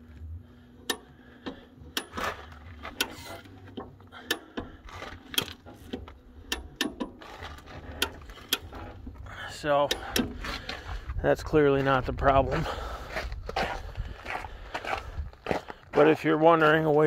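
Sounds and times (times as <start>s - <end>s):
low rumble: 0.0s - 15.6s
sharp clicks and knocks: 0.8s - 9.2s, 9.8s - 10.8s.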